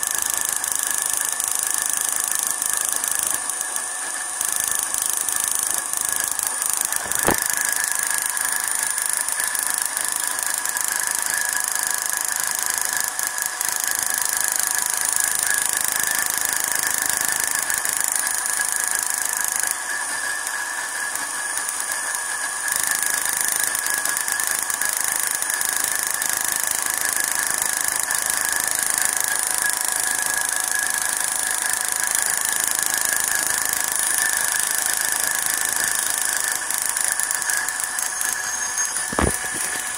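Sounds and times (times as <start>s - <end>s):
sharp click: 4.4s - 8.9s, 34.3s - 39.9s.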